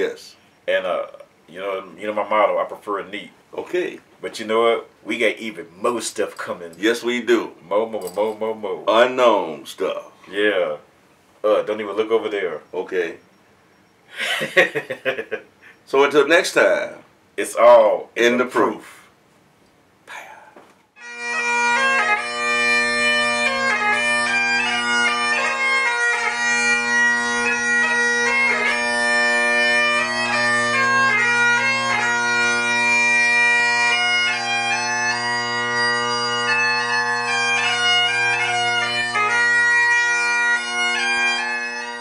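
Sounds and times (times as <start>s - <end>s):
bagpipes playing slow melody: 21.0s - 42.0s.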